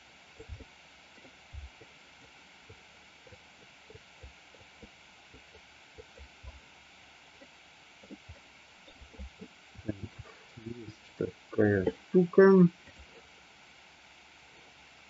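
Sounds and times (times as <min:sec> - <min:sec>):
soft low thumps: 0:00.0 - 0:06.7
faint microphone hiss: 0:00.0 - 0:15.0.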